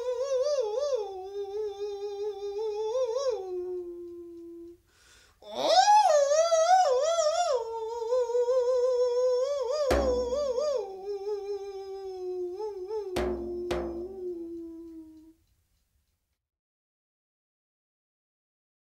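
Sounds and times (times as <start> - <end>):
solo voice singing: 0.0 - 4.8, 5.4 - 15.3
drum struck: 9.9 - 10.8, 13.2 - 14.4.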